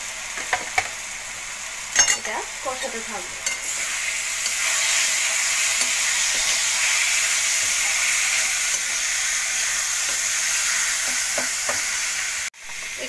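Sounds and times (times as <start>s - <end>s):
vegetables sizzling in hot oil: 0.0s - 13.0s.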